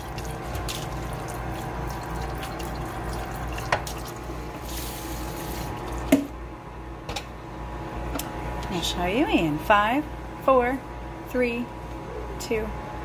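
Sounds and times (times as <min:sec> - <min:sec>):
faucet water splashing on pan: 0:00.0 - 0:06.1.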